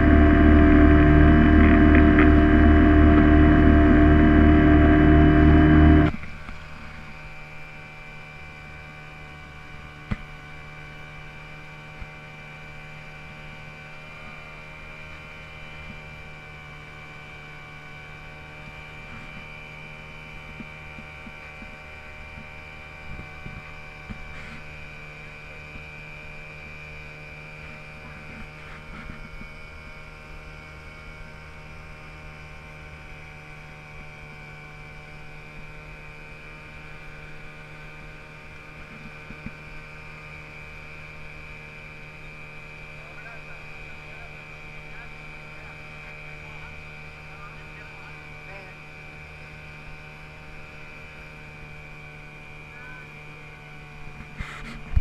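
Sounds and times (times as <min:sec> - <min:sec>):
steady tonal hum: 0:00.0 - 0:06.2.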